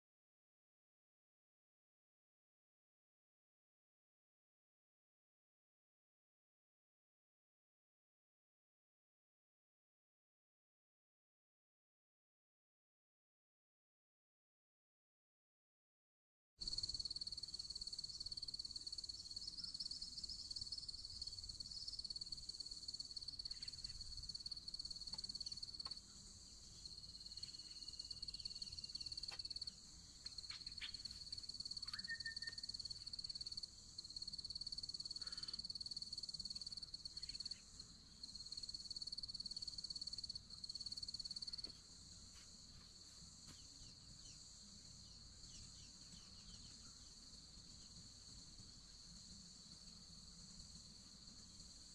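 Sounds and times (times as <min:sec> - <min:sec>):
insects buzzing: 0:16.6 - 0:51.9.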